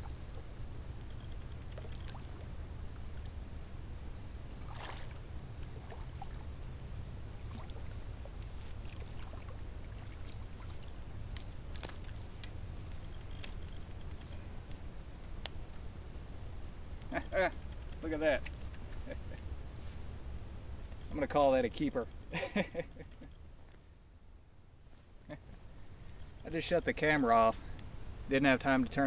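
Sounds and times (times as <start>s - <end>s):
steady low rumble: 0.0s - 29.0s
water splash: 4.6s - 5.2s
light ticks: 11.3s - 14.8s.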